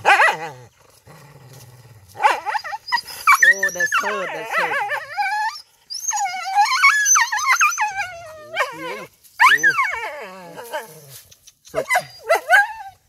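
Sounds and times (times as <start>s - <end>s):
dog whining and yelping: 2.2s - 10.9s, 11.7s - 13.0s.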